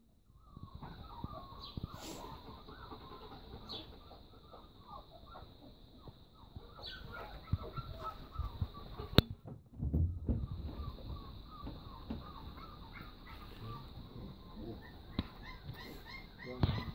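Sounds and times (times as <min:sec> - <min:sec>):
hens clucking: 0:00.7 - 0:09.3, 0:10.3 - 0:16.9.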